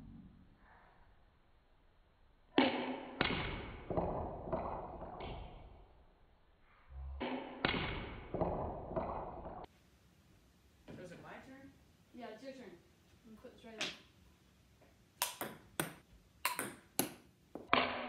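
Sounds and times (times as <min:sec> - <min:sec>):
ping pong ball knocks: 0:15.2 - 0:18.0.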